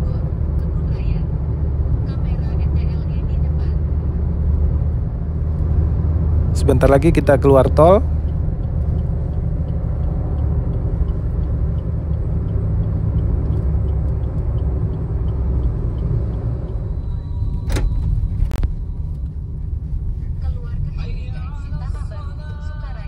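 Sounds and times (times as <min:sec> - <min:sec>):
car road noise rumble: 0:00.0 - 0:23.0
faint regular ticking: 0:02.8 - 0:19.7.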